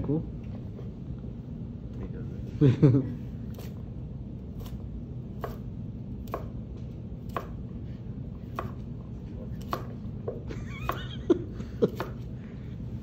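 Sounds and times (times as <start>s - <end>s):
knife cutting carrot on board: 4.5s - 11.0s, 11.9s - 12.3s.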